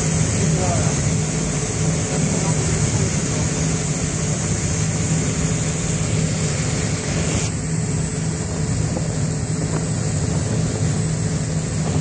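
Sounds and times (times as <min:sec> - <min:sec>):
wake and wind rushing: 0:03.0 - 0:12.0.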